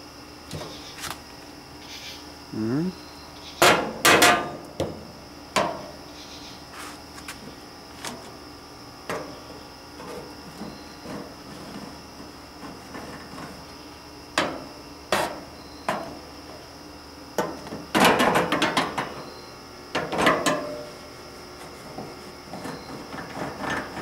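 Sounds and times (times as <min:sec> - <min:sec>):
knocks and rattles on grill metal: 0:03.6 - 0:05.0, 0:17.4 - 0:19.2.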